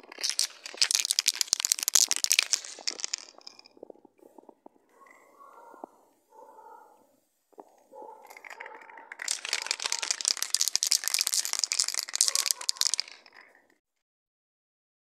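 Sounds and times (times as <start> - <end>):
spray can mixing ball rattling: 0.0 - 3.9, 8.3 - 13.7.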